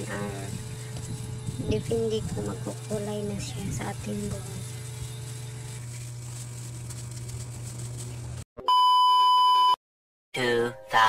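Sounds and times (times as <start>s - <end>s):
low steady hum: 0.0s - 8.4s
television test tone beep: 8.6s - 9.8s.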